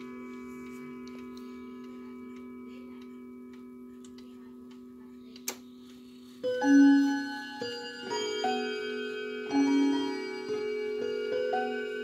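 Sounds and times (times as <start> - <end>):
clock chime ringing: 0.0 - 4.0, 6.4 - 12.0
wall clock ticking: 0.0 - 5.6.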